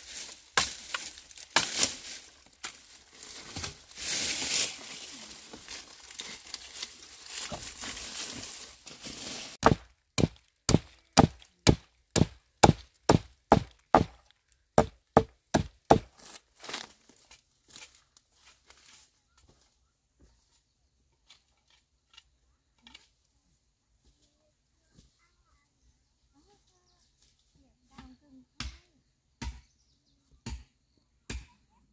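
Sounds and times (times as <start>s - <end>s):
rustling and crinkling: 0.0s - 11.6s
chopping wood: 0.6s - 2.0s, 9.6s - 14.2s, 14.8s - 16.1s, 28.6s - 29.7s, 30.4s - 31.6s.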